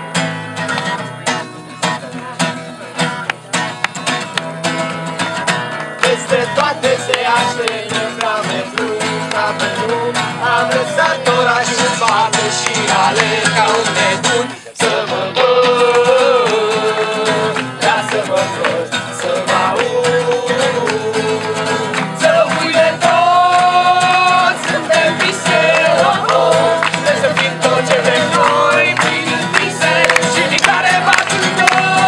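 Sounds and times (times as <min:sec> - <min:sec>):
strummed acoustic guitars: 0:00.0 - 0:32.0
group singing: 0:06.0 - 0:32.0.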